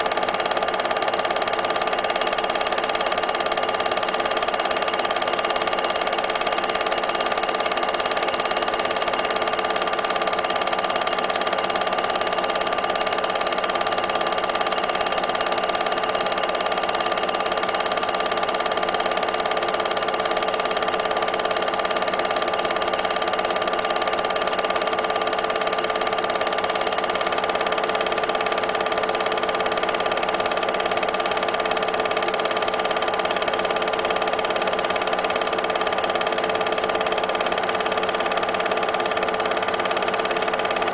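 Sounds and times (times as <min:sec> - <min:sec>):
film projector whirr: 0:00.0 - 0:40.9.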